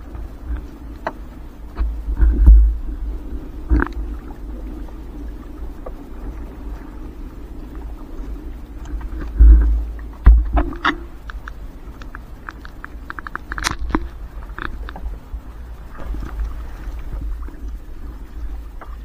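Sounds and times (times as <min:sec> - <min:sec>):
knocks and clicks of net and boat: 0:00.0 - 0:04.9, 0:08.8 - 0:19.0
low rumbling thumps: 0:01.7 - 0:04.3, 0:09.0 - 0:11.2.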